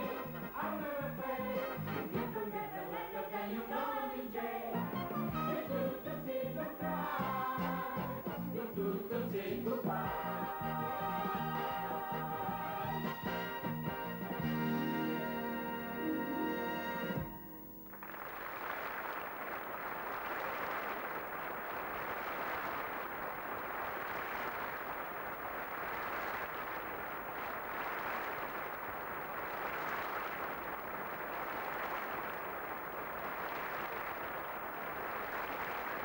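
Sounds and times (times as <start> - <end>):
audience applauding: 12.6 - 36.0.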